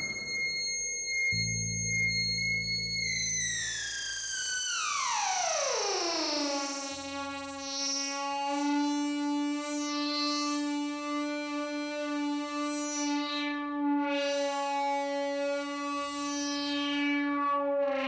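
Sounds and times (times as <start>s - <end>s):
synthesizer note with filter sweep: 0.0s - 3.9s.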